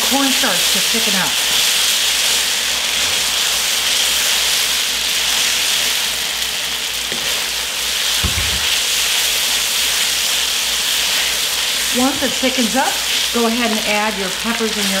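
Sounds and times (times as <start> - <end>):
sauce sizzling in a wok: 0.0 - 15.0
short low thump: 8.2 - 8.7.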